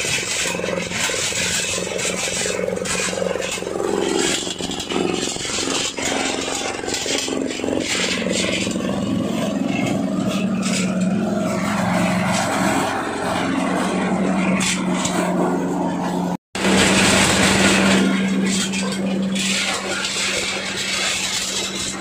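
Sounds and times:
husking machine churning: 0:00.0 - 0:22.0.

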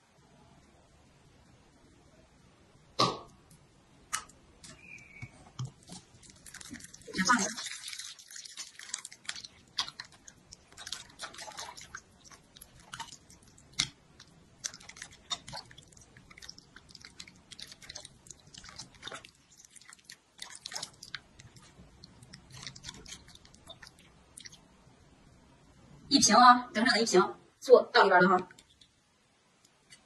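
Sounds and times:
metal spoon stirring in bowl: 0:05.8 - 0:24.1.

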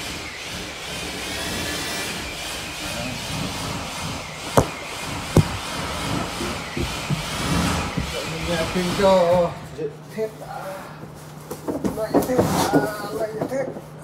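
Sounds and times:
mechanical whirring: 0:00.0 - 0:09.8
sharp knocks: 0:04.4 - 0:09.0.

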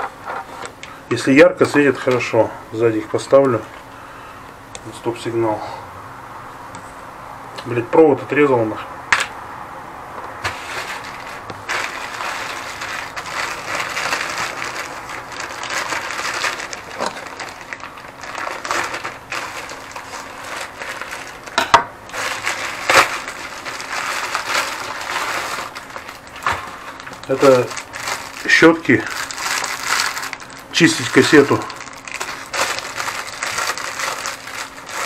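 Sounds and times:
plastic bag rustling and crinkling: 0:10.4 - 0:35.0.

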